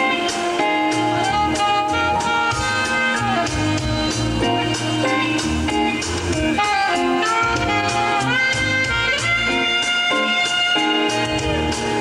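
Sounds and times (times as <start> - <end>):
held lead guitar notes: 0.0 - 12.0
live rock band playing: 0.0 - 12.0.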